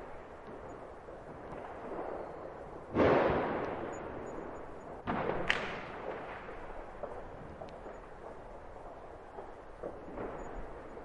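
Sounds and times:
distant firework booms: 0:01.2 - 0:08.5
sharp crack: 0:02.9 - 0:04.3, 0:05.0 - 0:10.6.

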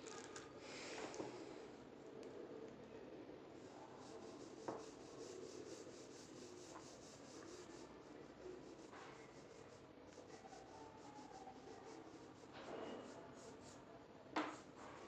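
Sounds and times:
pencil scratching on paper: 0:03.7 - 0:13.8.

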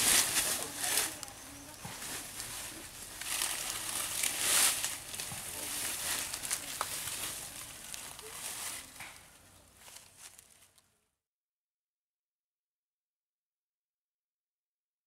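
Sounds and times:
rustling of grass and undergrowth: 0:00.0 - 0:10.8.

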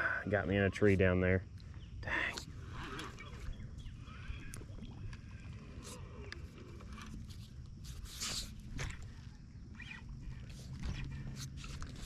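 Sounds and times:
low rumble of water and wind: 0:00.0 - 0:12.0.

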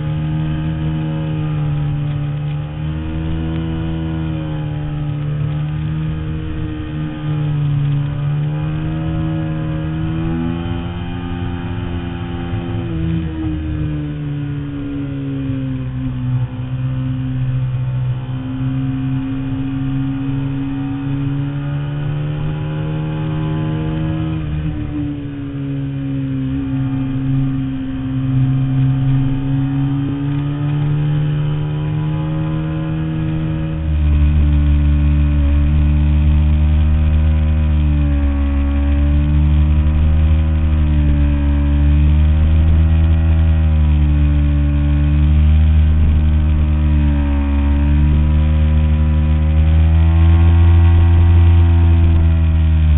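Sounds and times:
motorcycle engine running: 0:00.0 - 0:52.9.

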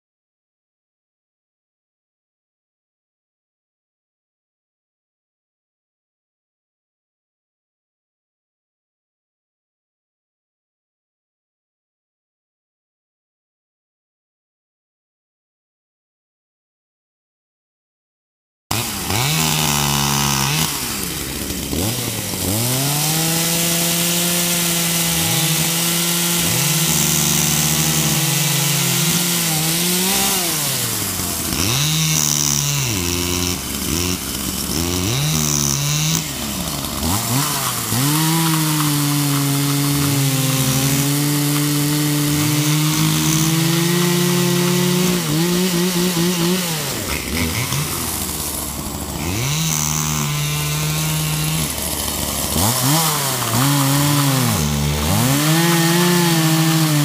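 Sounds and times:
chainsaw cutting wood: 0:18.7 - 0:57.0
chainsaw throttle blips: 0:18.7 - 0:57.0.

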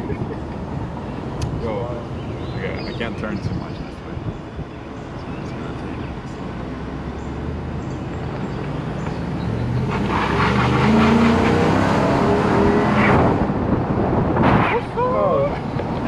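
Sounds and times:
truck engine accelerating: 0:00.0 - 0:16.0
wind rushing: 0:09.6 - 0:16.0.

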